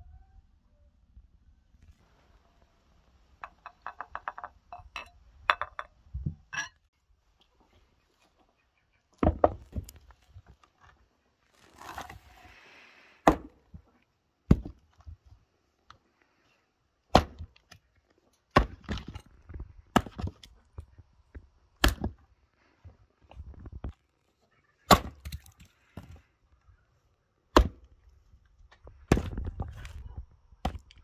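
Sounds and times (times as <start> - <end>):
axe chopping firewood: 13.2 - 13.6, 14.5 - 14.8, 17.1 - 17.8, 18.5 - 20.4, 21.8 - 22.2, 24.9 - 26.1, 27.5 - 27.9, 29.0 - 30.0, 30.6 - 31.0.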